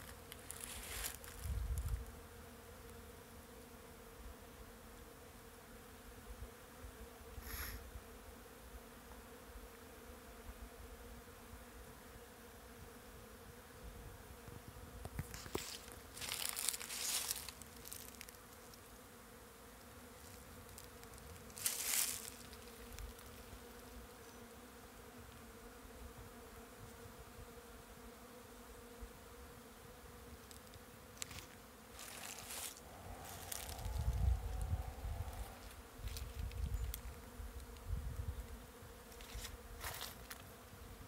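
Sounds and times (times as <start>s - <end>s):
bees buzzing: 0.0s - 41.0s
bursts of hiss: 7.4s - 7.8s.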